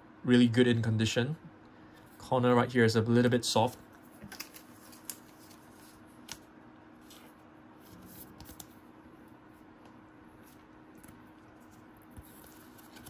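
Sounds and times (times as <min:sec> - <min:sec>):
trading cards flicking: 0:04.2 - 0:05.6.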